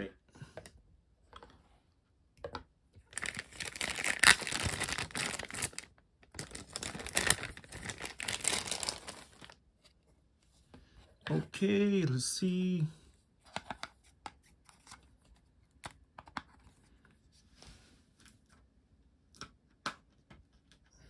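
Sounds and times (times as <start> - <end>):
plastic bag crinkling: 3.1 - 9.6.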